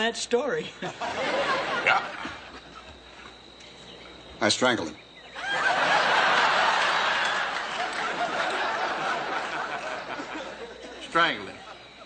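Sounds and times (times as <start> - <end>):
studio audience laughing: 0.8 - 2.9, 5.4 - 12.0.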